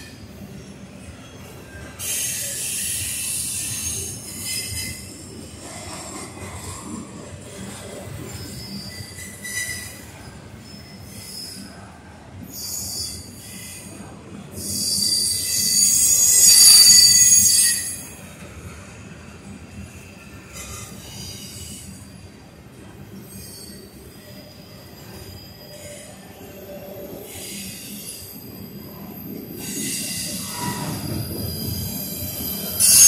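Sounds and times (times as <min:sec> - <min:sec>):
freight train rumbling past: 0:00.0 - 0:33.0
train wheels squealing on rail: 0:00.0 - 0:33.0.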